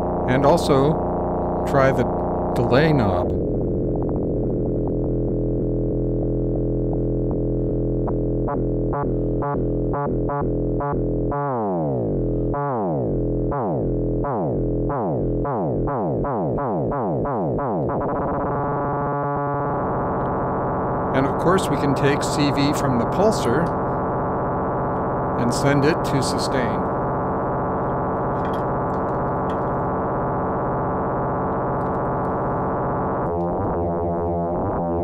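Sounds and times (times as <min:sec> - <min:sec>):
synthesizer oscillator tone: 0:00.0 - 0:35.0
falling synthesizer pitch sweeps: 0:14.9 - 0:31.5
oscillator clicks: 0:15.9 - 0:20.6, 0:23.1 - 0:25.4, 0:26.6 - 0:34.8.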